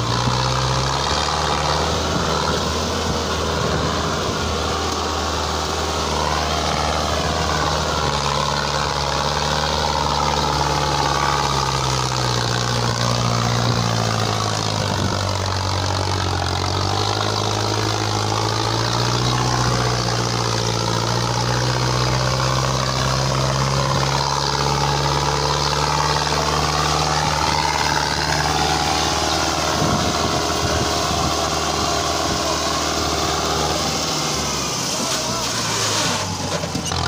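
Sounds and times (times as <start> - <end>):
tractor diesel engine under load: 0.0 - 37.0.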